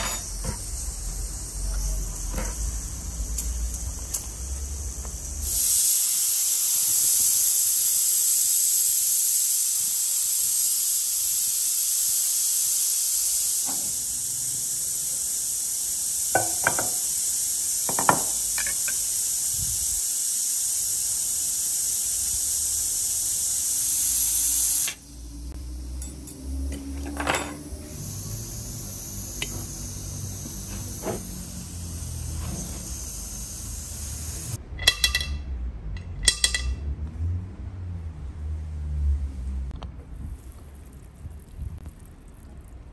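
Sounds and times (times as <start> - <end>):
pressure cooker steam hissing: 0.0 - 35.2
light clinks: 26.0 - 27.6.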